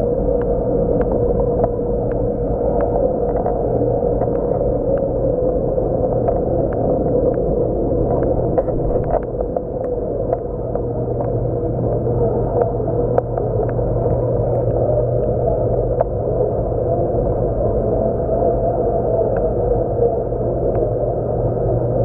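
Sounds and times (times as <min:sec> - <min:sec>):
pumps and circulating water: 0:00.0 - 0:22.0
faint clicks: 0:00.3 - 0:16.9.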